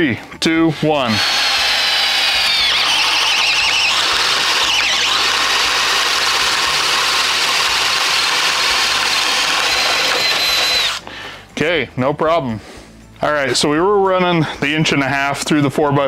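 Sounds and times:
drill bit cutting wood: 0:00.5 - 0:11.0
drill motor under heavy load: 0:00.7 - 0:11.0.

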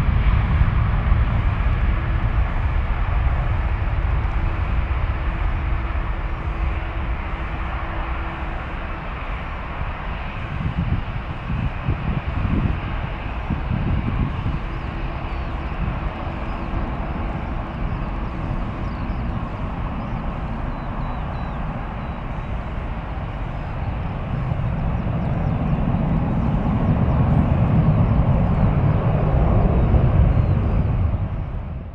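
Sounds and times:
jet airliner rumble: 0:00.0 - 0:31.9.

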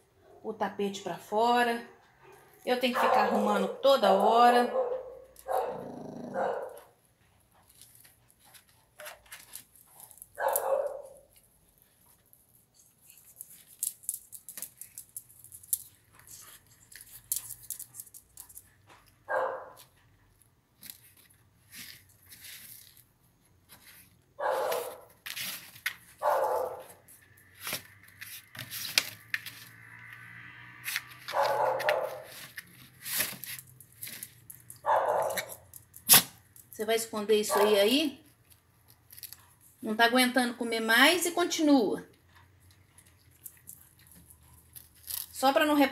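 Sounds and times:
dog growling and barking: 0:03.0 - 0:03.8, 0:04.7 - 0:07.0, 0:10.4 - 0:11.2, 0:26.2 - 0:27.0, 0:31.3 - 0:32.3, 0:34.8 - 0:35.6
dog scratching at a blanket: 0:30.8 - 0:33.7.

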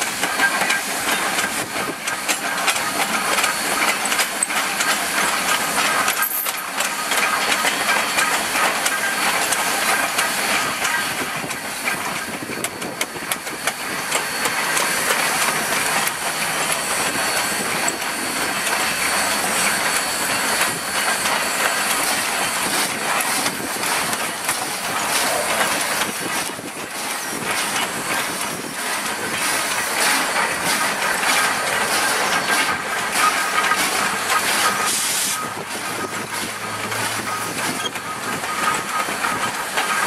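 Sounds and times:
steam hissing: 0:00.0 - 0:40.0
train wheels clattering over rail joints: 0:00.0 - 0:40.0.

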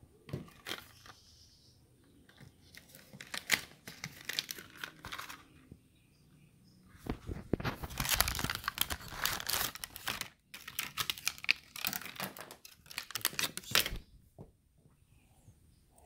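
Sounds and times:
cardboard box and plastic crinkling: 0:00.3 - 0:01.3, 0:02.3 - 0:05.6, 0:07.1 - 0:14.0.

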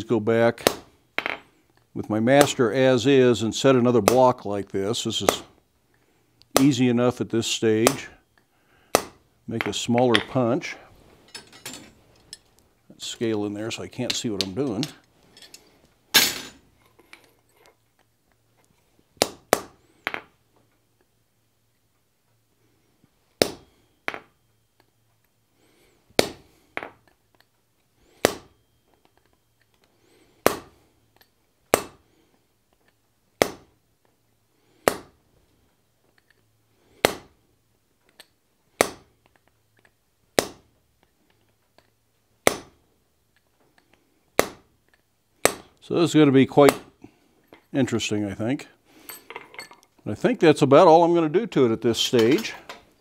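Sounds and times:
hammer striking punch on hot steel: 0:30.4 - 0:30.7, 0:31.7 - 0:32.0, 0:40.4 - 0:40.6, 0:42.5 - 0:42.7, 0:44.4 - 0:44.6.

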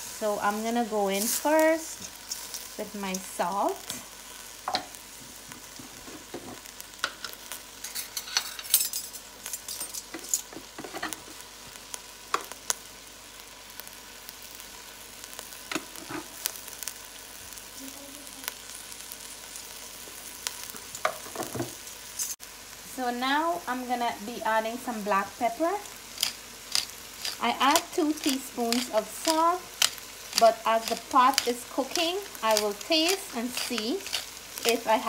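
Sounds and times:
rice and onions sizzling in oil: 0:00.0 - 0:35.0.

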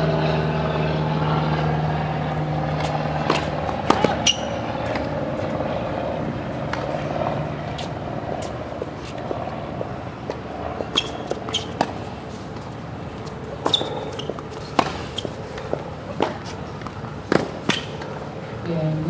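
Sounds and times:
low background hum: 0:00.0 - 0:19.0
tennis ball bouncing on court: 0:02.7 - 0:05.5, 0:06.7 - 0:07.1, 0:07.7 - 0:18.2
tennis ball hitting rackets: 0:02.7 - 0:05.6, 0:06.6 - 0:18.3.

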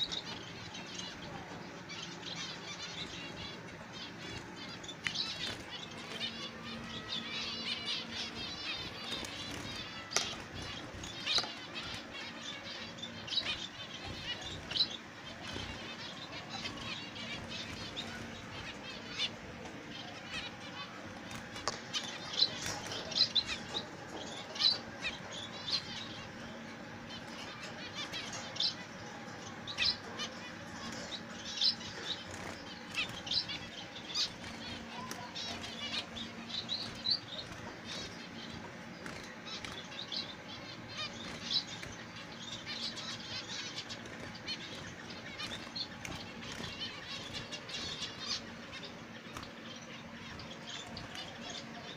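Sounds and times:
finches chirping: 0:00.0 - 0:51.9
wings fluttering: 0:20.3 - 0:25.2.

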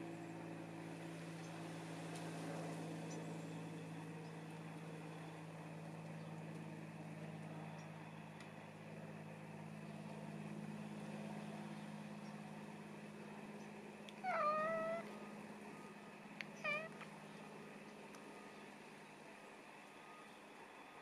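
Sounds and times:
cat meowing: 0:14.2 - 0:15.1, 0:16.6 - 0:17.0.

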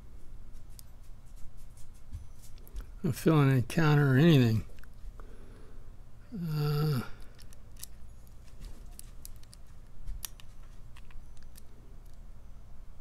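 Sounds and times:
person humming low: 0:06.3 - 0:07.3.

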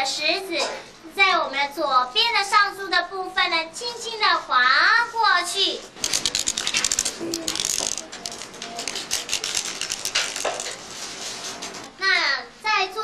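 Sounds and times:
abacus beads clicking: 0:06.0 - 0:10.8.

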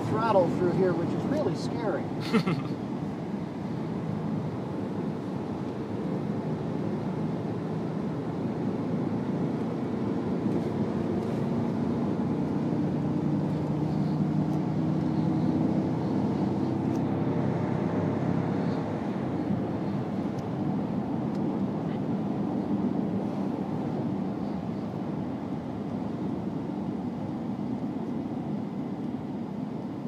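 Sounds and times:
car engine pulling under throttle: 0:00.0 - 0:30.0.

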